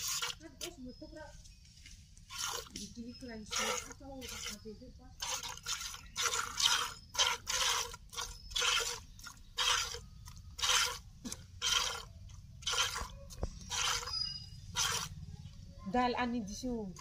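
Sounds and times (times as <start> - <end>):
milk squirting into plastic bucket: 0.0 - 0.8, 2.2 - 15.2.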